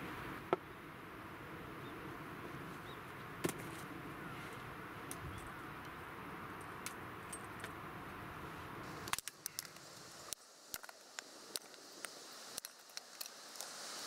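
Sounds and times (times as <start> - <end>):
steady rushing noise: 0.0 - 14.0
firewood sticks clacking: 9.0 - 13.7.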